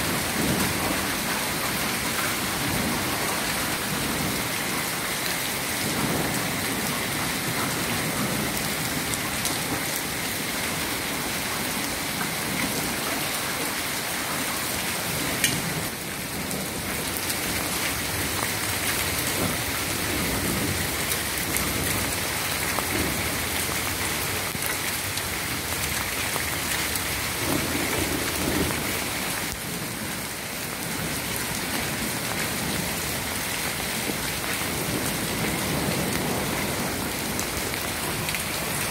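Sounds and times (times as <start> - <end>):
hail and rain falling: 0.0 - 38.9.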